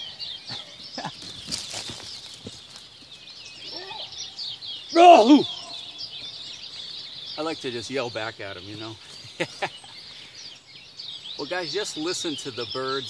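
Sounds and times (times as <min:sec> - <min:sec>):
bird chorus: 0:00.0 - 0:13.0
loud wavering bird call: 0:03.6 - 0:06.5.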